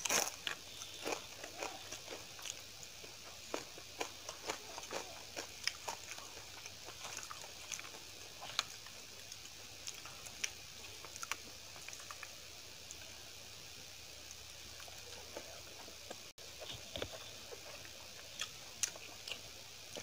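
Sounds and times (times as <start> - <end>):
person chewing: 0.0 - 12.3, 14.8 - 20.0.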